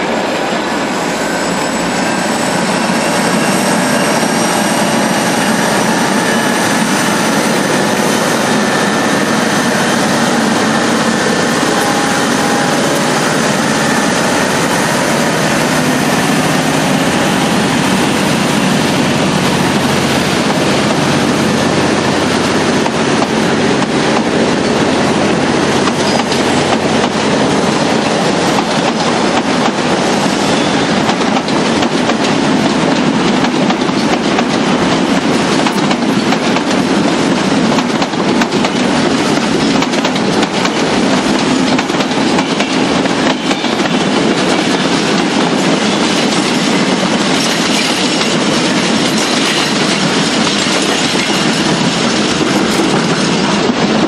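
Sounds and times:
high-pitched whine: 0.0s - 22.6s
diesel locomotive passing: 0.0s - 54.0s.

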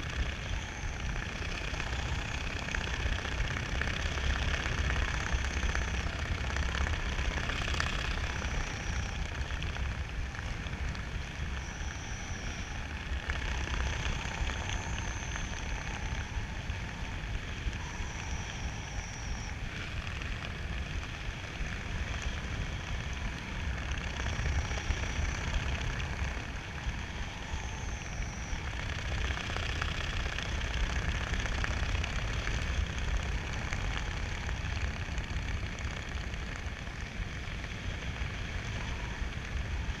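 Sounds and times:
wind rushing over microphone: 0.0s - 40.0s
faint high whistles: 11.4s - 20.0s, 26.9s - 29.4s.

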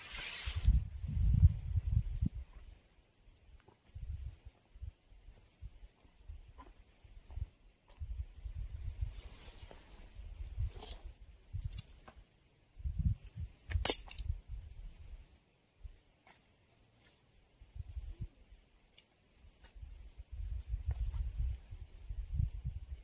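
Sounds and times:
wind rumble on microphone: 0.0s - 2.8s, 3.9s - 5.0s, 5.6s - 12.1s, 12.7s - 15.2s, 17.7s - 18.5s, 19.8s - 23.0s.

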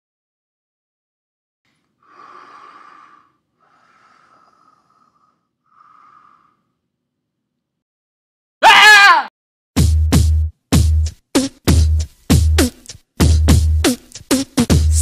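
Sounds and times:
person breathing: 1.8s - 6.9s.

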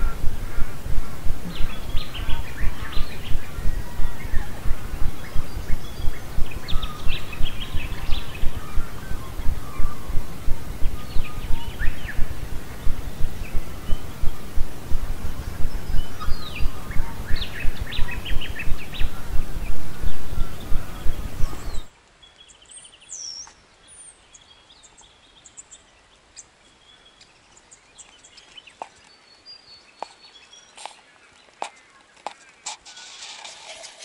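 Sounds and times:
wind buffeting microphone: 0.0s - 21.9s
birds chirping: 0.0s - 34.0s.

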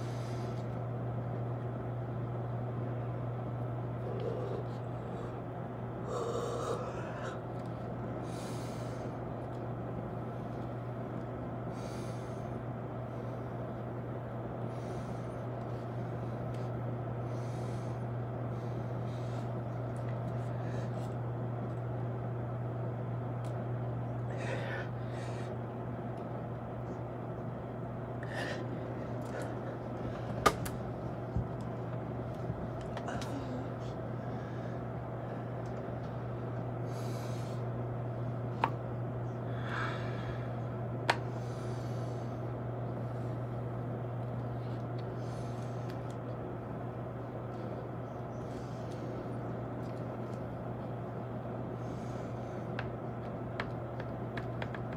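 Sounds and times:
steady low hum: 0.0s - 54.9s
man breathing hard: 4.0s - 9.3s, 11.7s - 13.7s, 24.2s - 25.6s, 28.2s - 30.5s, 36.8s - 37.8s, 39.2s - 42.5s.

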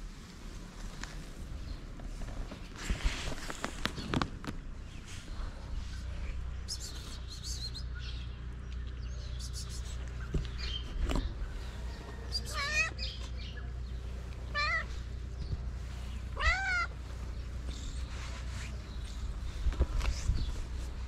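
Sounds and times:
low steady rumble: 0.0s - 21.0s
cat meowing: 12.4s - 13.0s, 14.5s - 14.9s, 16.4s - 16.9s.

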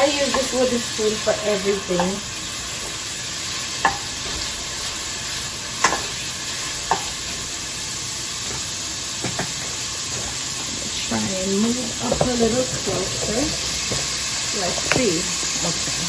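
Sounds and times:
onions sizzling in oil: 0.0s - 16.0s.

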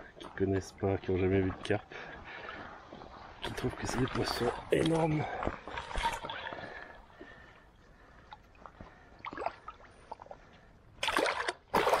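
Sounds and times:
water lapping: 0.0s - 12.0s
loud splash of fish: 11.0s - 12.0s.

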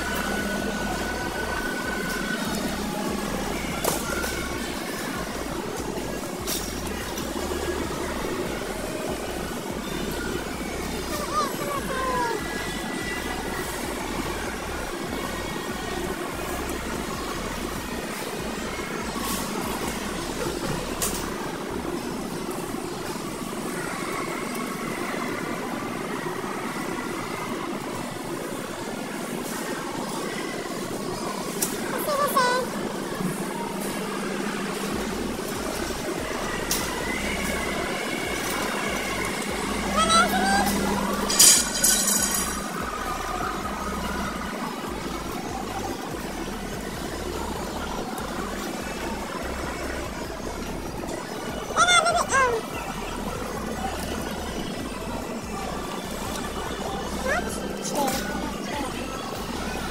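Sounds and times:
supermarket background hum: 0.0s - 59.9s
shopping cart rolling on concrete: 30.9s - 44.9s.

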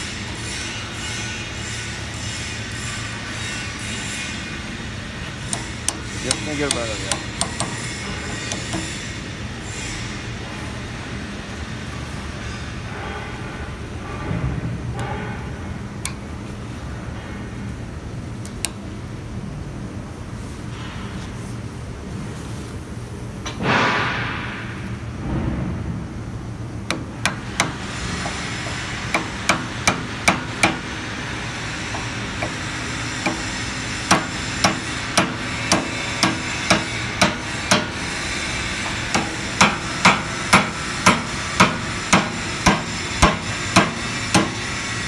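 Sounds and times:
hammer striking steel punch: 5.5s - 9.0s, 26.9s - 28.4s, 29.1s - 30.9s, 32.0s - 38.0s, 38.9s - 44.7s.

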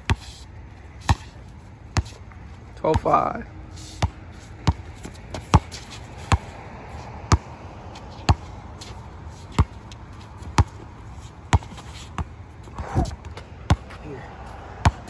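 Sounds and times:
basketball bouncing on hard court: 2.9s - 3.2s, 4.0s - 6.5s, 7.3s - 10.8s, 11.5s - 14.0s.

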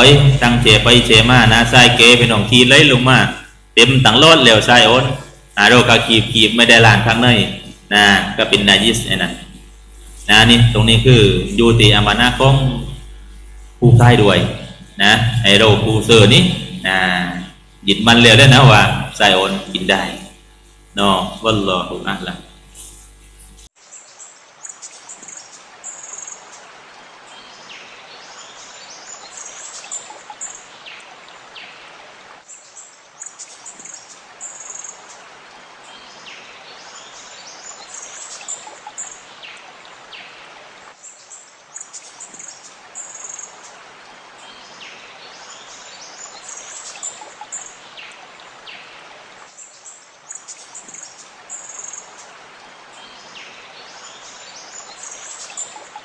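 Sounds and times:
birds chirping and calling: 23.8s - 56.0s
flowing water rushing: 24.4s - 56.0s.

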